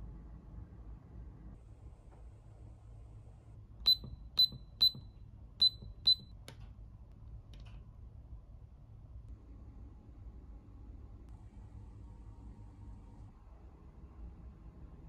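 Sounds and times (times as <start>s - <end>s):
short high electronic beeps: 3.9s - 6.3s.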